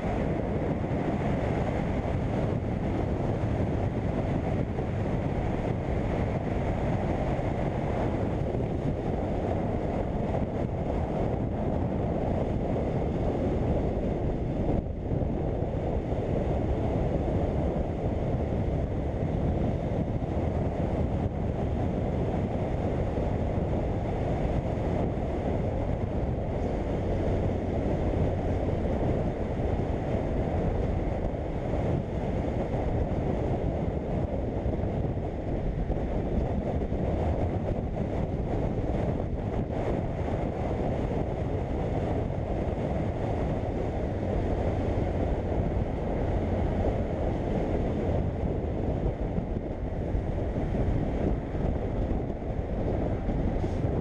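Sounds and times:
wind rushing on microphone: 0.0s - 54.0s.

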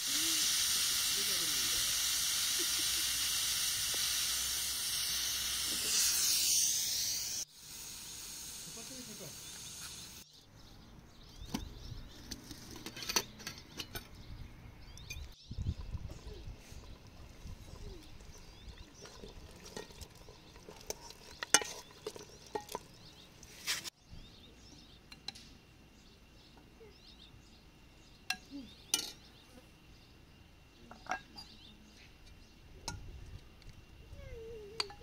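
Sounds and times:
ladle scraping metal pot: 18.9s - 23.9s.

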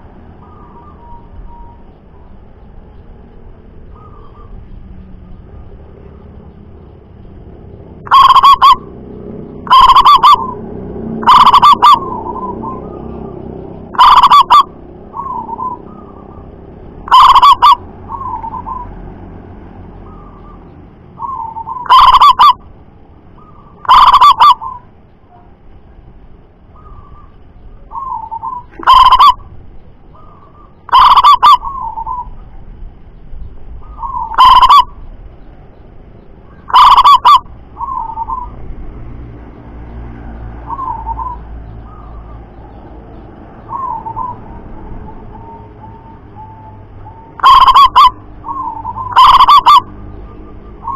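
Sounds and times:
dove cooing: 8.0s - 9.0s, 9.6s - 10.6s, 11.2s - 18.9s, 21.2s - 22.6s, 23.4s - 25.4s, 27.9s - 29.5s, 30.1s - 32.4s, 33.8s - 35.0s, 36.5s - 38.7s, 40.6s - 42.8s, 43.6s - 50.9s.

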